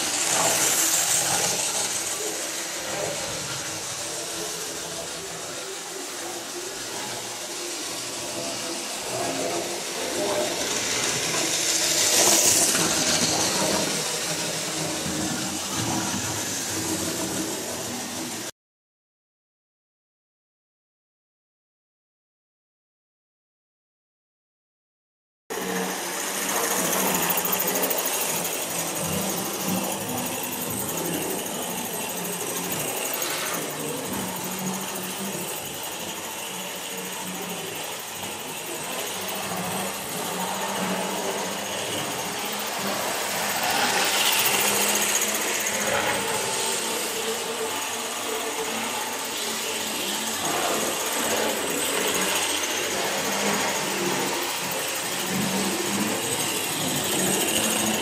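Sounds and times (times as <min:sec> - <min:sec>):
model train wheels on track: 0:00.0 - 0:18.5, 0:25.5 - 0:58.0
whir of small electric motors: 0:00.0 - 0:18.5, 0:25.5 - 0:58.0.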